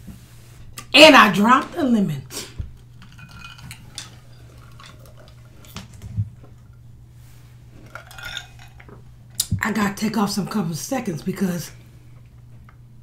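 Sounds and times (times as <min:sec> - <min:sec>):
steady low hum: 0:00.0 - 0:13.0
ice clinking in glass: 0:03.0 - 0:05.8, 0:07.8 - 0:08.9.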